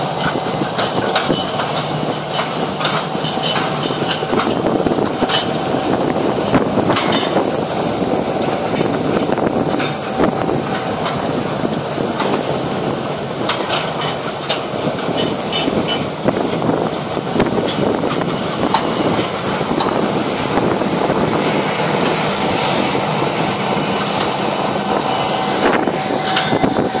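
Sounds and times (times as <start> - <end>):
air drill rumbling and rattling: 0.0 - 27.0
wind buffeting microphone: 0.0 - 27.0.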